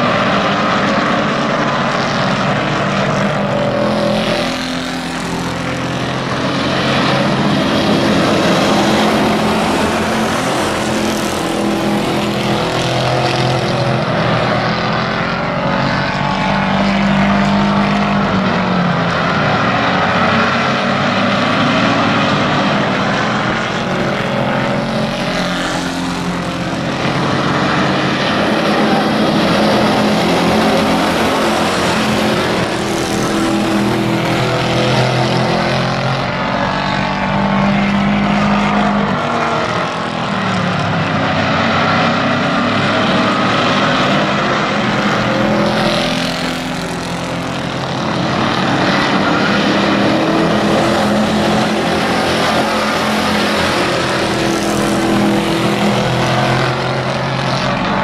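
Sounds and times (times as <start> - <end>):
race truck engines: 0.0 - 58.0.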